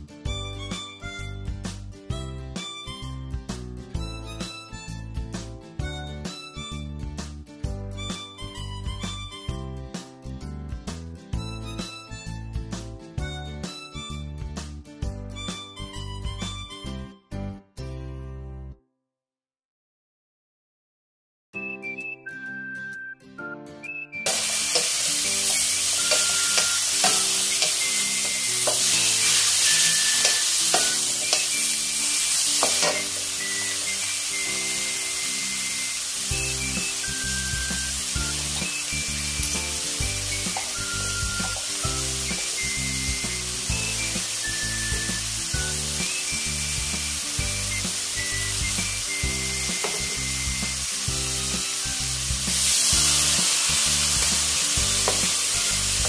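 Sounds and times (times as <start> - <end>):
background music with beat: 0.0 - 17.1, 21.6 - 56.0
food sizzling in a wok: 24.3 - 56.0.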